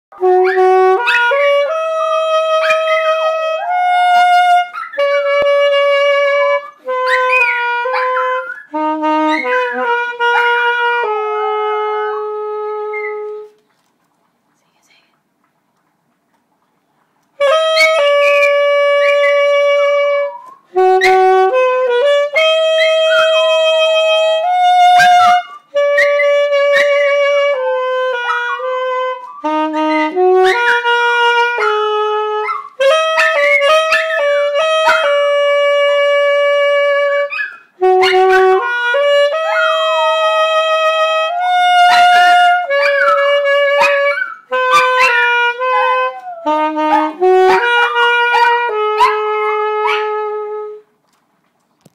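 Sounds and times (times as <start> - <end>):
saxophone playing slow tune: 0.2 - 13.6, 17.4 - 51.0
small dog howling: 0.4 - 3.8, 6.3 - 8.7, 9.3 - 13.3, 22.3 - 27.2, 32.4 - 35.2, 37.2 - 38.6, 39.3 - 40.7, 41.3 - 50.2.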